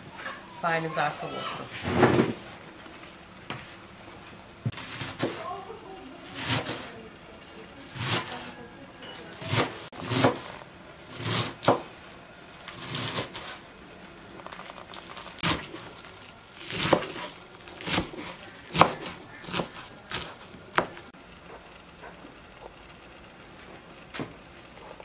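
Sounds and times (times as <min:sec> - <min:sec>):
knife chopping on wooden board: 0:09.4 - 0:11.9, 0:16.7 - 0:21.0.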